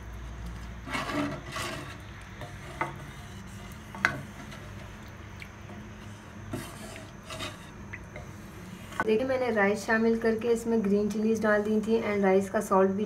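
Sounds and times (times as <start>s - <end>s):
spatula swishing through liquid: 0.7s - 9.1s.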